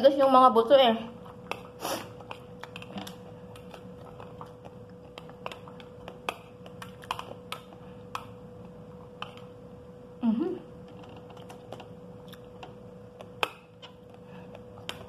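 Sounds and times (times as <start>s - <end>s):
faint steady hum: 0.0s - 15.0s
chewing crunchy seeds: 1.2s - 9.5s.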